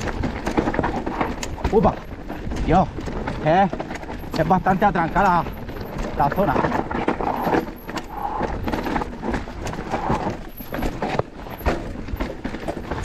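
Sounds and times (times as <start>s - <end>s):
bike clattering over rocks: 0.0s - 13.0s.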